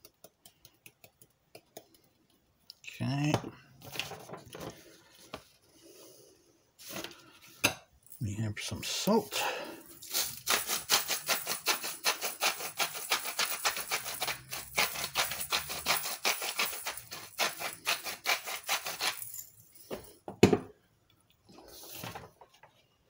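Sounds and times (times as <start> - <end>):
salt grinder crushing crystals: 10.0 - 19.5.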